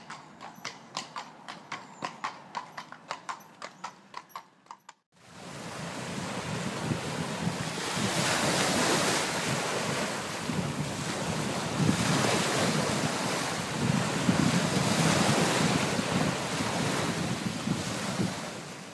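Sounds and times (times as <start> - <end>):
small waves washing ashore: 5.2 - 18.9
wind on microphone: 5.3 - 18.9.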